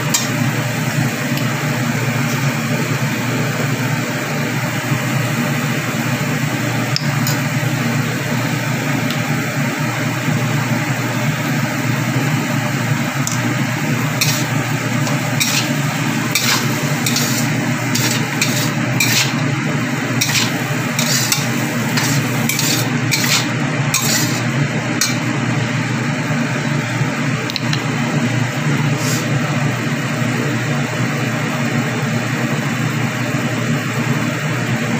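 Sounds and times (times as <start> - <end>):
food sizzling in a wok: 10.5 - 25.5, 28.8 - 29.4
metal spatula scraping a wok: 14.1 - 19.4, 20.1 - 25.2.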